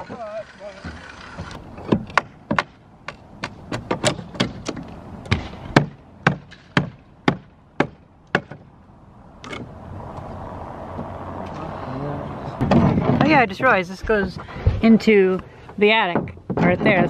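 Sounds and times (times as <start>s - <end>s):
hammer striking wooden boards: 0.8s - 8.7s, 12.6s - 13.3s.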